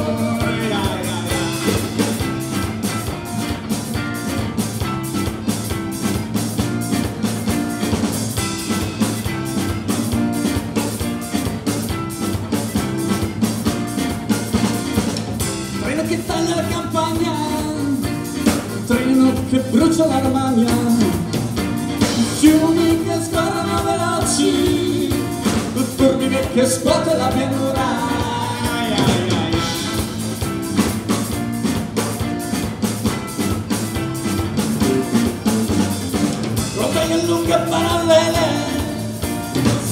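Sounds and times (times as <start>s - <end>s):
accordion: 0.0s - 39.9s
folk-rock band playing: 0.0s - 39.9s
woman singing: 22.3s - 29.6s.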